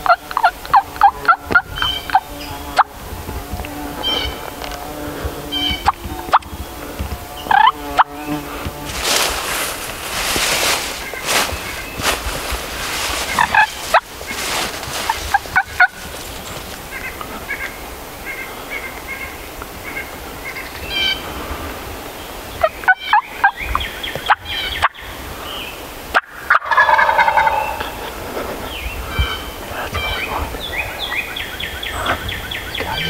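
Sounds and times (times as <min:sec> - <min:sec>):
turkey gobbling: 0:00.0 - 0:02.2, 0:07.5 - 0:08.1, 0:10.1 - 0:18.8, 0:26.2 - 0:28.2.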